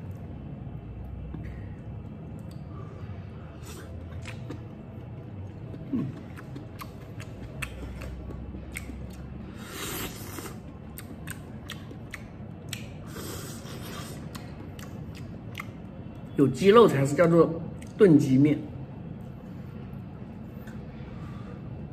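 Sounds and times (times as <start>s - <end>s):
slurping: 3.5s - 4.7s, 5.7s - 11.8s, 12.7s - 14.5s
chewing and biting: 3.6s - 15.8s.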